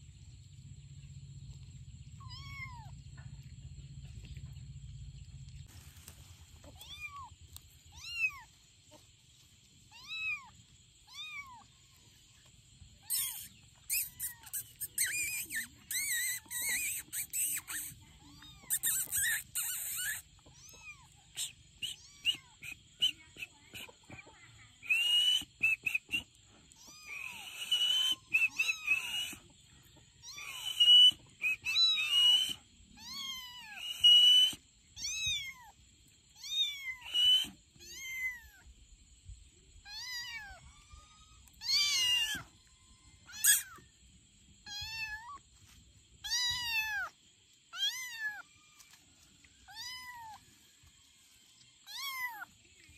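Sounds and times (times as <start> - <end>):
kittens meowing: 2.2 - 2.9, 6.6 - 7.3, 7.9 - 8.5, 9.9 - 11.6, 13.0 - 21.3, 21.9 - 22.6, 26.7 - 29.4, 30.2 - 34.4, 35.0 - 35.7, 36.4 - 38.7, 39.8 - 42.6, 43.2 - 43.8, 44.6 - 45.4, 46.2 - 47.1, 47.7 - 48.4, 49.6 - 50.4, 51.9 - 52.5.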